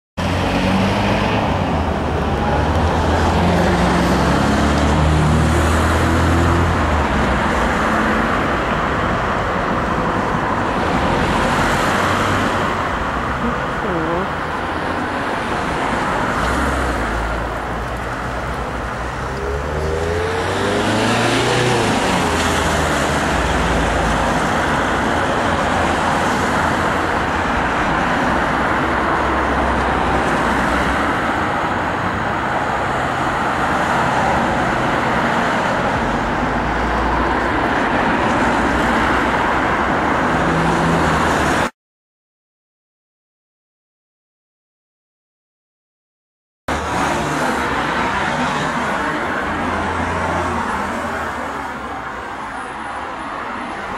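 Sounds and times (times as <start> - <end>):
vehicle passing by: 0.2 - 8.6, 15.5 - 27.0
road traffic rumble and hiss: 0.2 - 41.7, 46.7 - 53.9.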